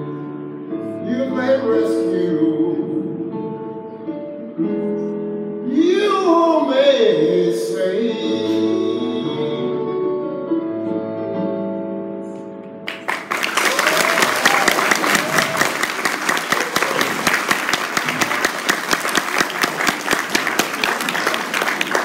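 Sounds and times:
audience applause: 12.9s - 22.0s.

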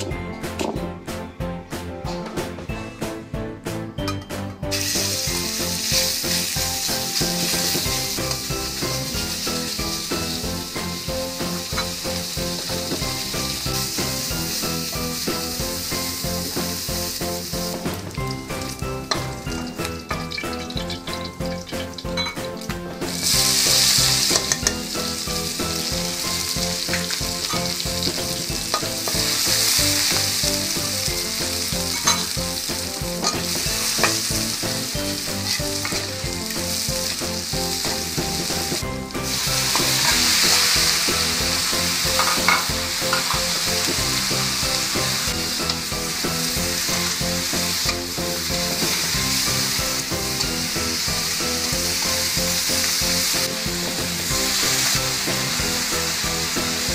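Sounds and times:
food sizzling in hot fat: 4.7s - 56.9s
spatula scraping wok: 4.7s - 56.9s.

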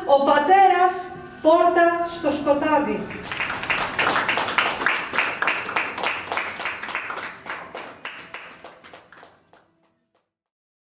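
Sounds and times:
small audience applauding: 3.1s - 10.3s.

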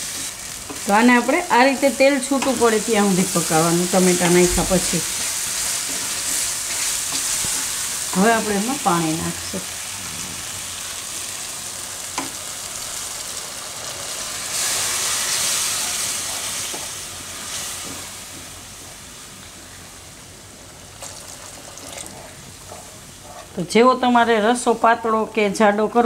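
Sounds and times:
water hissing in hot pan: 0.0s - 20.1s, 20.9s - 22.7s
masala sizzling in oil: 0.0s - 26.0s.

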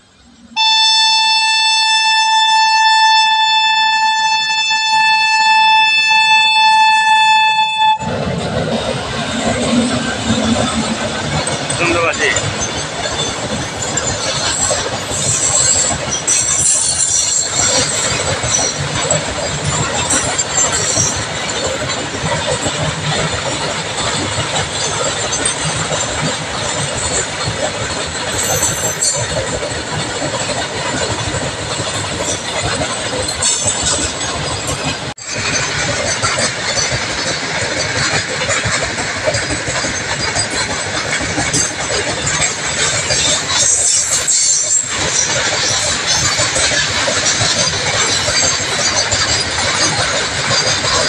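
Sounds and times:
train wheels running on rails: 0.0s - 51.0s
locomotive horn: 0.6s - 8.2s
high-pitched wheel squeal: 15.1s - 21.2s.

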